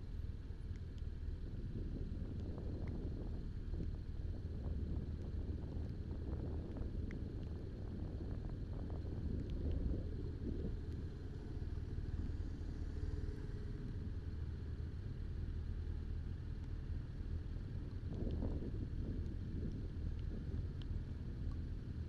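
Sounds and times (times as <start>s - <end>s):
wind buffeting microphone: 1.4s - 22.0s.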